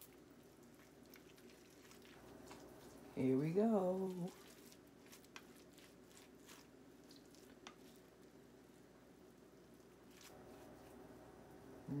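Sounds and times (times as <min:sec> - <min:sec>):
spatula stirring in glass dish: 0:00.0 - 0:08.3
faint room hum: 0:00.0 - 0:12.0.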